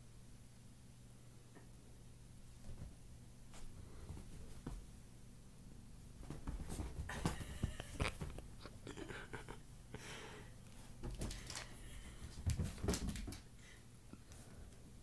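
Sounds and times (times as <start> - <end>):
kitten rustling on blanket: 6.1 - 8.8.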